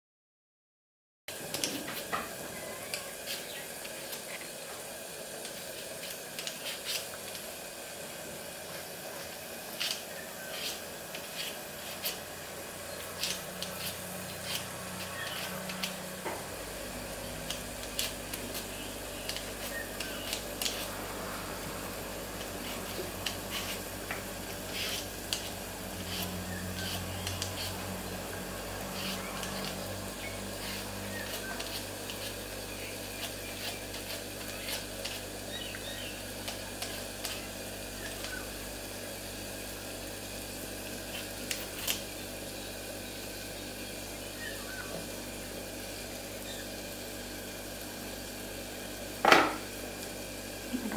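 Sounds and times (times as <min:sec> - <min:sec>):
steady low hum: 0:01.3 - 0:50.9
peeler scraping potato skin: 0:05.4 - 0:07.4, 0:09.7 - 0:16.1, 0:17.3 - 0:21.3, 0:22.3 - 0:28.0, 0:28.7 - 0:38.5, 0:41.0 - 0:42.1.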